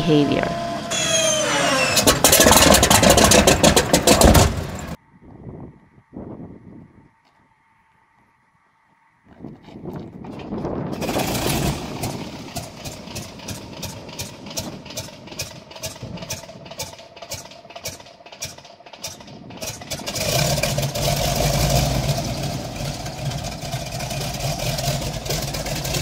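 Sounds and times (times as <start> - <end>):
aircraft radial engine running: 0.0 - 5.0, 10.2 - 26.0
engine starter whine and chuffs: 0.0 - 5.0, 10.0 - 26.0.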